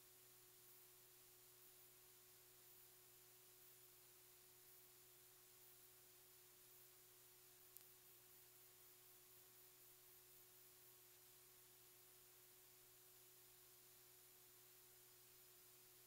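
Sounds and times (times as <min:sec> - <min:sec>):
faint hum and hiss: 0:00.0 - 0:16.0
faint tick: 0:07.6 - 0:08.0.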